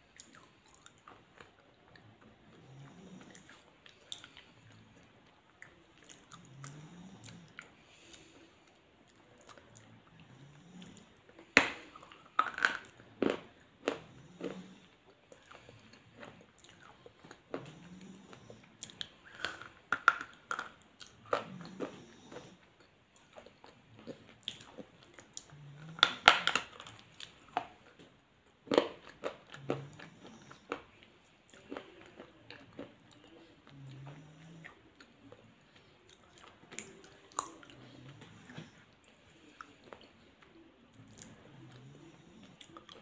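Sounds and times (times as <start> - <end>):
quiet chewing: 0.0 - 43.0
crunchy food crunching: 11.8 - 14.6, 28.6 - 30.9.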